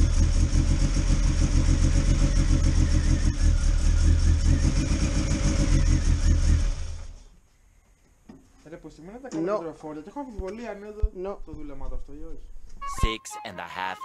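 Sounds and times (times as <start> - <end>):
car engine running: 0.0 - 7.2.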